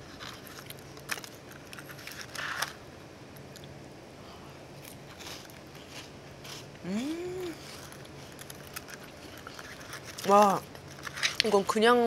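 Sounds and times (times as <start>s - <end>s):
faint steady hum: 0.0s - 12.0s
rustling crunch: 4.8s - 6.8s.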